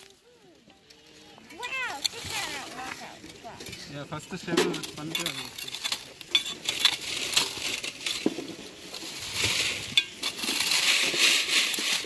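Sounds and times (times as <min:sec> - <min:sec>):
scoop scraping gravel on mesh: 0:05.0 - 0:12.0.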